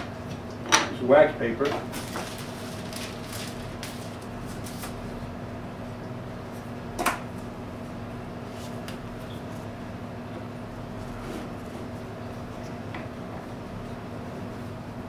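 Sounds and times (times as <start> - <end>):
steady low hum: 0.0 - 15.0
wax paper rustling: 1.8 - 5.1.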